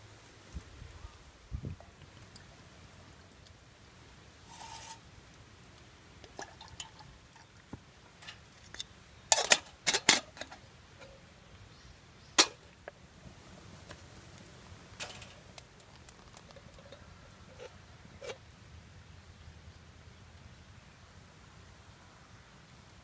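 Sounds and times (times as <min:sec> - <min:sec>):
kettle scraping on table: 0:04.5 - 0:05.0
metal kettle clinking: 0:09.3 - 0:10.6.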